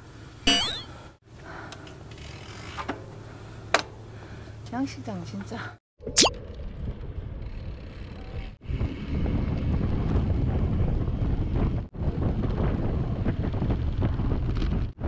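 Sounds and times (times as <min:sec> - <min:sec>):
wind buffeting microphone: 0:06.7 - 0:15.0.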